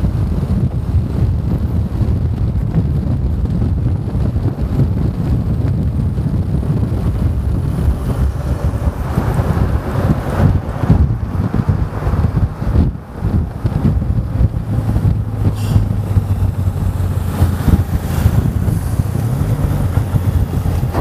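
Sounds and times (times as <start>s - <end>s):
heavy wind buffeting microphone: 0.0s - 21.0s
large lorry passing close: 6.0s - 21.0s.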